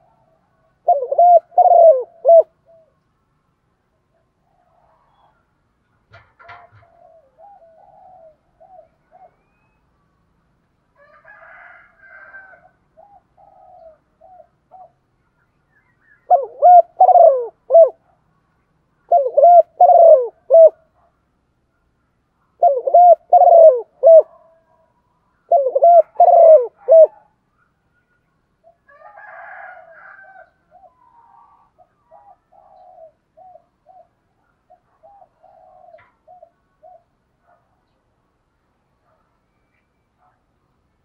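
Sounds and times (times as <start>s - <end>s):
dove cooing: 0.0s - 3.0s, 6.2s - 9.6s, 11.3s - 15.0s, 16.2s - 18.2s, 19.0s - 21.0s, 22.6s - 27.4s, 28.6s - 37.7s.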